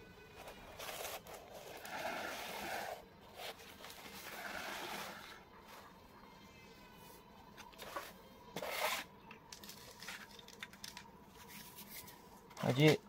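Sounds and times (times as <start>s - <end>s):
notebook scraping on hard floor: 0.4s - 5.9s, 7.6s - 9.1s.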